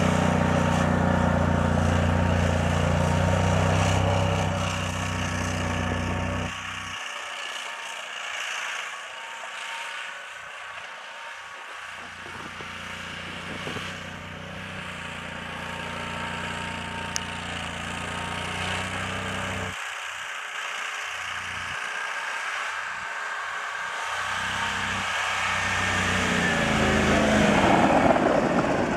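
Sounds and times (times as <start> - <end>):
tracked vehicle engine under load: 0.0 - 28.9.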